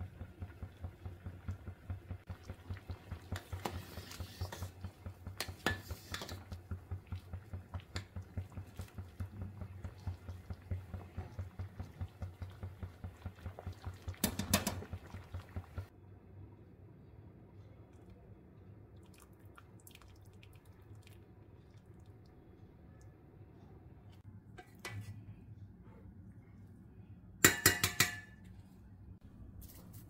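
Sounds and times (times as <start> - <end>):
water boiling in a pot: 0.0 - 15.9
metal spoon scraping a pot: 3.3 - 6.5.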